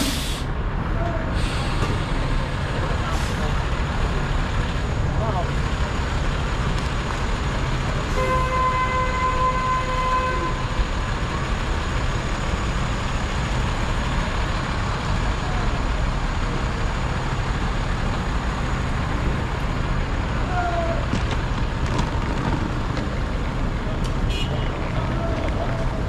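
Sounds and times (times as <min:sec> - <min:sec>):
city street traffic: 0:00.0 - 0:26.0
vehicle horn: 0:08.1 - 0:10.7, 0:24.3 - 0:24.8.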